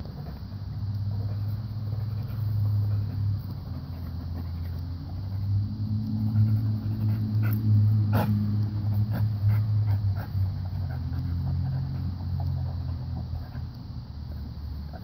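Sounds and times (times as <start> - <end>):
dog growling: 1.3 - 13.8.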